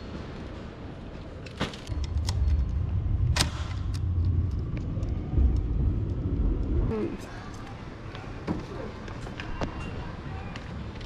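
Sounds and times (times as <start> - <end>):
bike and keys rattling: 0.0 - 2.9.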